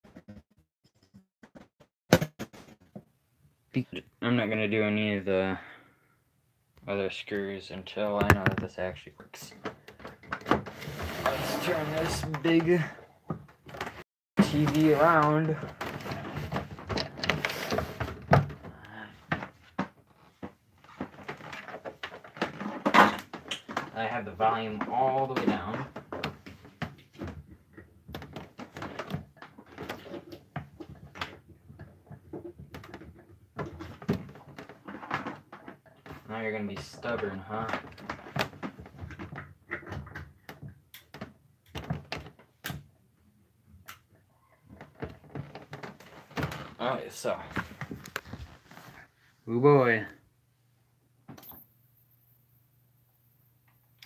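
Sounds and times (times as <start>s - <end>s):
television set knocking and scraping: 8.2s - 8.7s
clicks and knocks of handling equipment: 43.8s - 49.0s.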